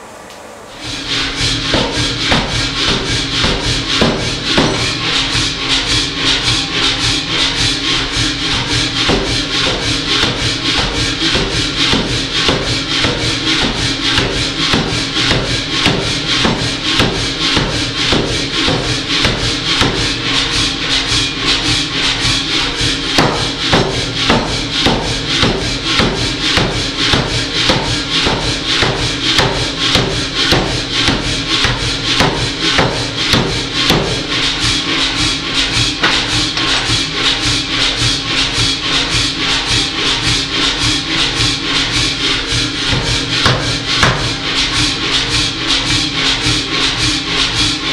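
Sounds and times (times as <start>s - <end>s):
power hammer striking steel: 0.8s - 6.5s, 8.1s - 20.5s, 22.2s - 34.7s, 35.6s - 37.4s, 42.3s - 45.1s.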